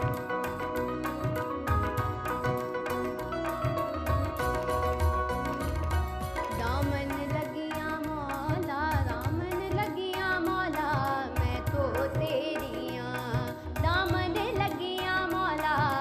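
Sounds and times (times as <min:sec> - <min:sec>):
hand drum strokes: 0:00.0 - 0:07.7
girl singing: 0:06.4 - 0:16.0.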